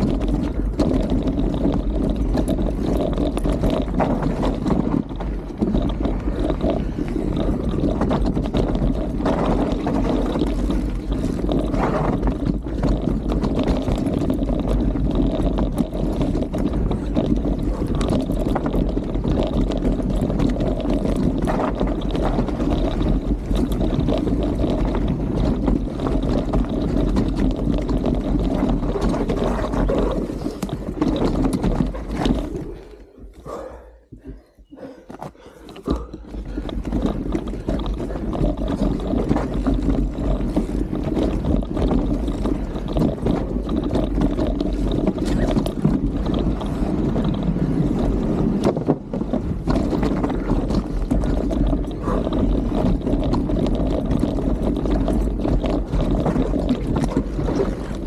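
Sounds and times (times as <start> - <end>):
wind buffeting microphone: 0.0 - 32.8, 35.9 - 58.0
bike knocks and rattles: 0.0 - 32.9, 33.5 - 58.0
bike tyre rumble: 0.0 - 58.0.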